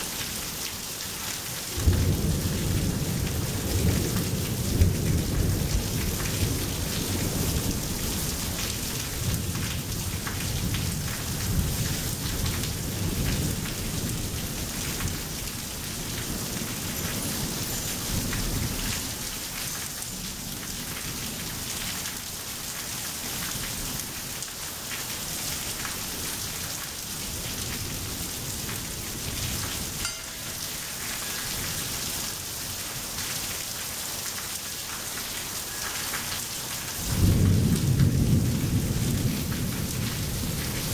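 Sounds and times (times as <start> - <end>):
steady rain falling: 0.0 - 40.9
rolling thunder rumble: 1.8 - 17.3, 37.0 - 40.9.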